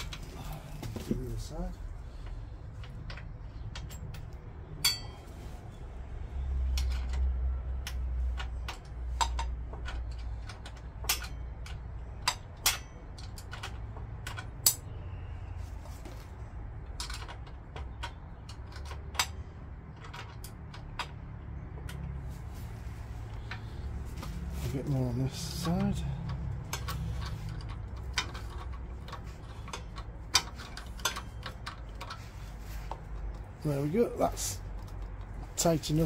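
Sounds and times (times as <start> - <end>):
spanners clicking on metal nuts: 6.7 - 15.0, 24.8 - 36.0.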